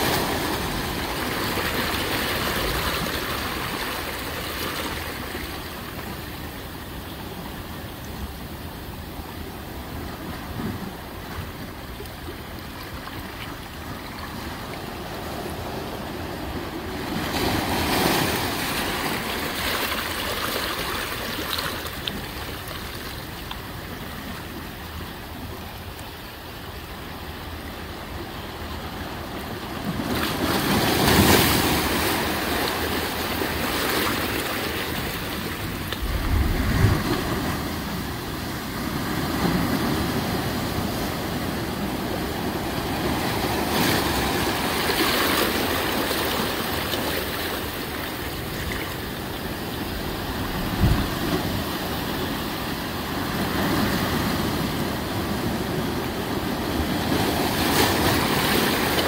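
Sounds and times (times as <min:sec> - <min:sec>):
ocean surf washing: 0:00.0 - 0:59.0
wave breaking: 0:33.0 - 0:38.9, 0:49.8 - 0:52.2
low thump: 0:36.0 - 0:37.6.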